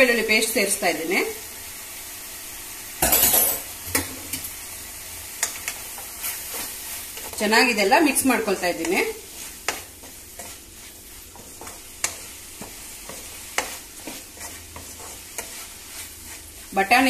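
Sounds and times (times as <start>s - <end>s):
vegetables sizzling in oil: 0.0s - 17.0s
spatula tapping and scraping pan: 5.4s - 17.0s.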